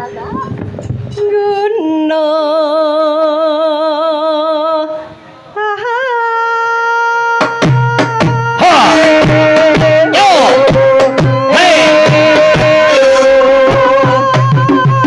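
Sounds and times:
woman singing with vibrato: 0:01.1 - 0:15.0
deep drum strokes: 0:07.6 - 0:15.0.

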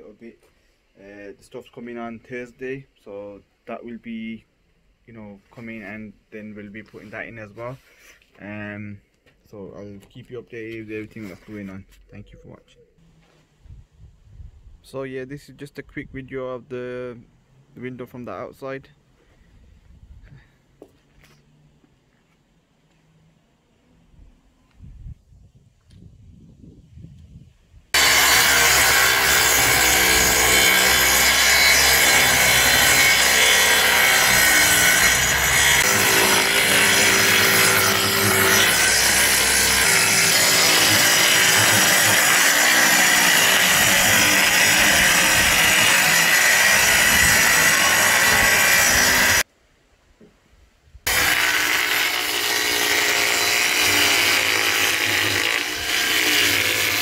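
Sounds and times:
electric power saw cutting board: 0:28.0 - 0:49.4, 0:51.1 - 0:57.0.

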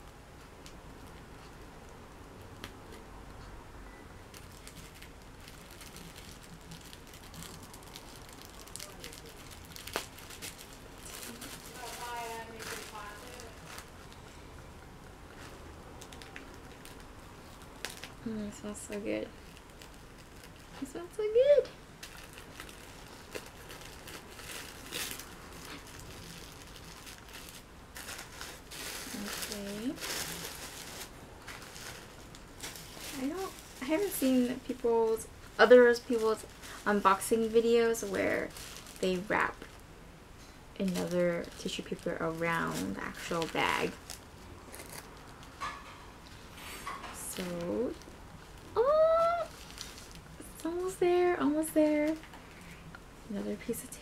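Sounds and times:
tissue paper crinkling: 0:04.3 - 0:14.3, 0:15.3 - 0:20.8, 0:21.4 - 0:39.8, 0:40.8 - 0:52.5
tape peeling: 0:22.0 - 0:34.3, 0:42.6 - 0:50.4.

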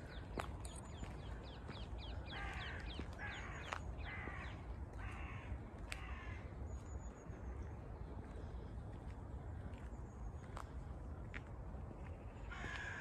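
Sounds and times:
small birds chirping: 0:00.0 - 0:04.6
crow cawing: 0:02.2 - 0:06.4, 0:12.5 - 0:13.0.

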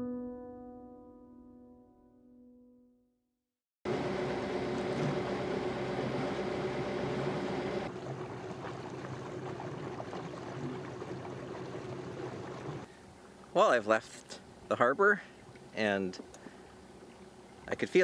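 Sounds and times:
boat engine running: 0:03.9 - 0:13.6, 0:14.3 - 0:18.0
water rushing along hull: 0:03.9 - 0:18.0
water splashing around dinghy: 0:03.9 - 0:18.0.

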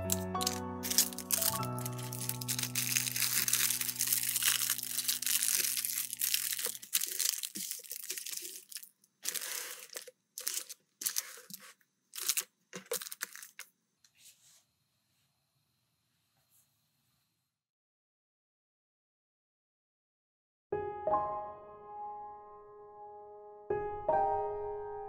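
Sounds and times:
plastic packaging crinkling: 0:00.0 - 0:13.7.

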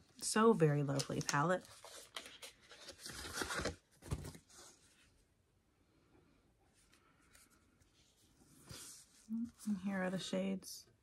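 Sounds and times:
cardboard palette rustling: 0:00.9 - 0:05.1.

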